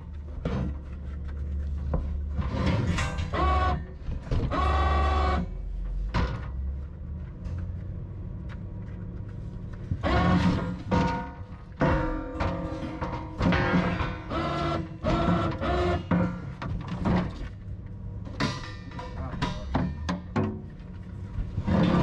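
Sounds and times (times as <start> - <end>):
metal clanks: 10.0 - 22.0
metal scraping: 20.9 - 22.0.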